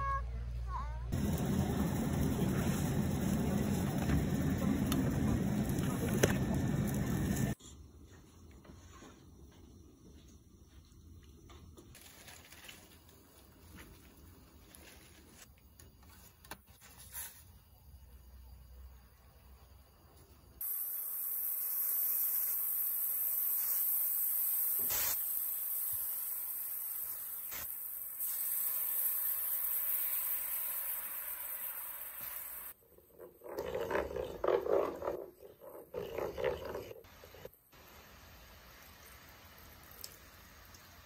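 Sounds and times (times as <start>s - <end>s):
sauce sizzling in pan: 1.1s - 7.6s, 20.6s - 32.8s, 37.0s - 41.0s.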